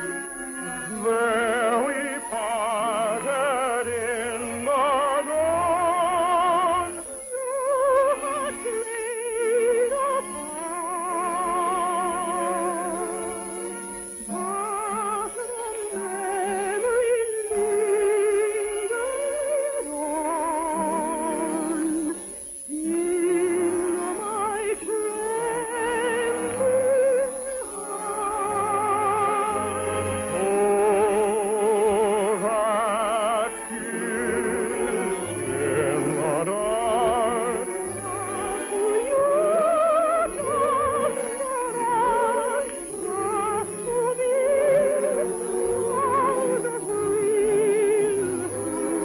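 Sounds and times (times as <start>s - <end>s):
operatic singing with vibrato: 0.0s - 49.0s
orchestra playing: 27.7s - 49.0s.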